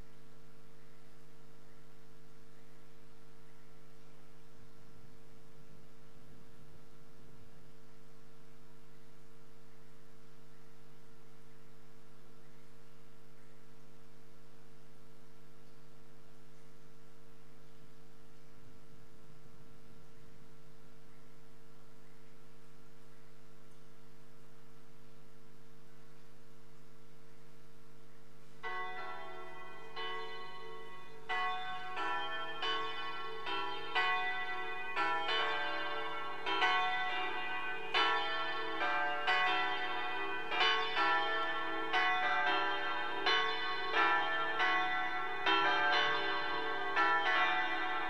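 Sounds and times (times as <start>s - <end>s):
steady electrical hum: 0.0s - 34.8s
church bells pealing: 28.6s - 48.0s.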